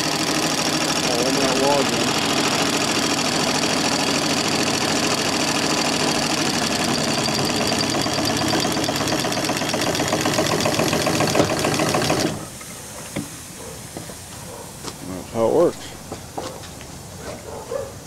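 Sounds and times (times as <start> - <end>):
drum winding in cable: 0.1 - 12.5.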